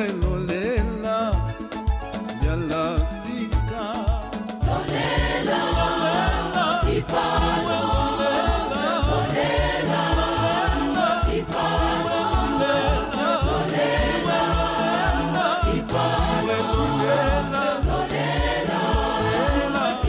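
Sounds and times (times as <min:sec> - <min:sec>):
choir singing gospel: 0:04.3 - 0:20.0
steady low beat: 0:04.6 - 0:20.0.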